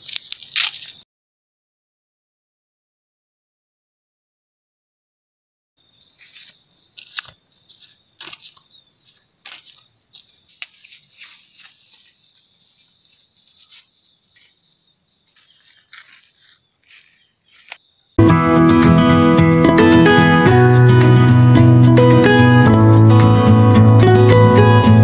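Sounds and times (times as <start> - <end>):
high-pitched insect chorus: 0.0 - 1.0, 5.8 - 18.2.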